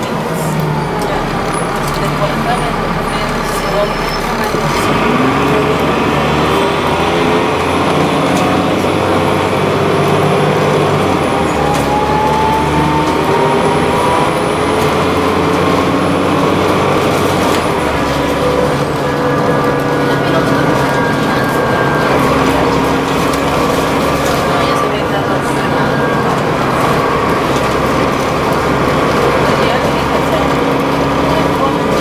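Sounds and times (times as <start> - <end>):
bus diesel engine running: 0.0 - 32.0
rising engine whine: 0.0 - 32.0
road noise: 0.0 - 32.0.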